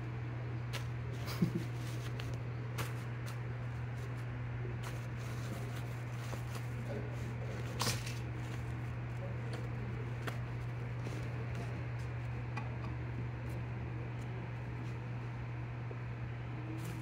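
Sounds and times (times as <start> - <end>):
steady low hum: 0.0 - 17.0
plastic sheeting crinkling: 0.7 - 12.3.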